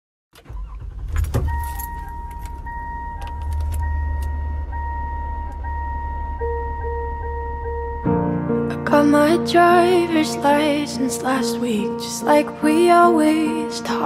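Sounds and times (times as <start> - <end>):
low engine rumble: 0.4 - 11.0
keys jingling: 1.1 - 4.4
clicks: 1.2 - 5.8
dashboard warning chime: 1.3 - 8.4.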